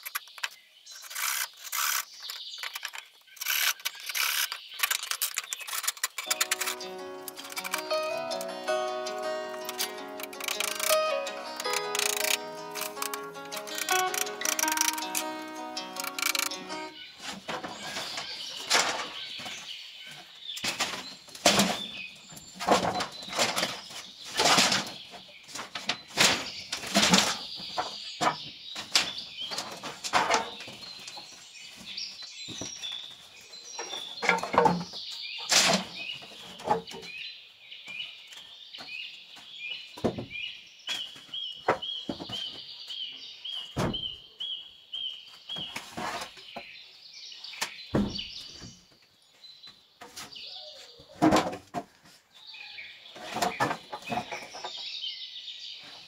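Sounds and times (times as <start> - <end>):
birds chirping: 0.0 - 51.2, 52.4 - 56.0
sharp knocks and thuds: 47.9 - 48.7.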